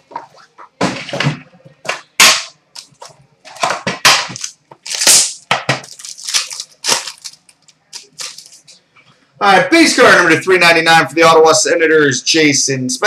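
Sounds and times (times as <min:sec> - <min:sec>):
card wrapper crinkling: 0:04.3 - 0:08.8.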